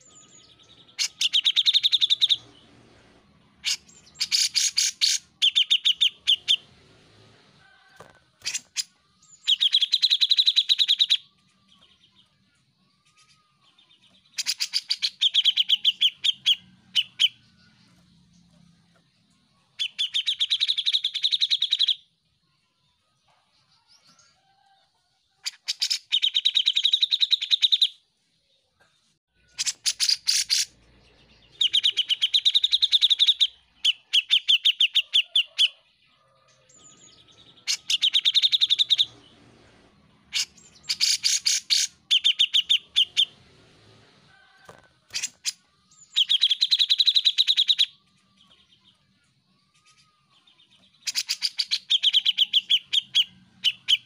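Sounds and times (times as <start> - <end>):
bulbul singing: 0.0 - 2.6, 3.4 - 6.7, 8.4 - 22.1, 29.4 - 35.8, 36.7 - 39.3, 40.3 - 43.4, 45.1 - 54.0.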